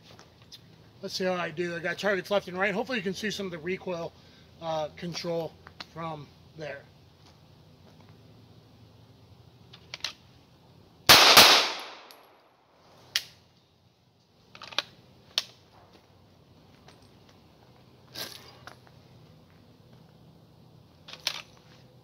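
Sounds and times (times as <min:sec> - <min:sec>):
pistol shots with echo: 0:11.1 - 0:12.4.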